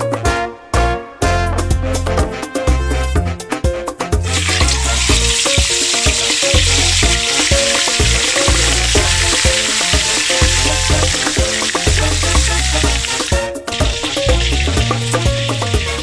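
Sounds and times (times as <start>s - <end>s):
background music with bass beat: 1.2s - 16.0s
fish deep-frying in hot oil: 4.2s - 16.0s.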